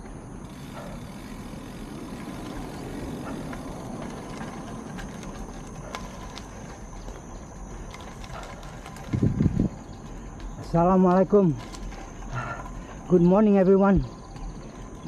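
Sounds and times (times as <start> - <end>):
bicycle tyres rumbling on asphalt: 0.0 - 15.0
wind on microphone: 9.0 - 9.9.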